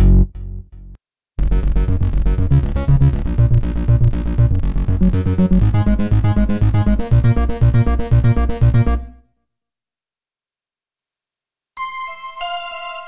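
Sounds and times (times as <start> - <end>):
repeating synth bass pattern: 1.4 - 9.2.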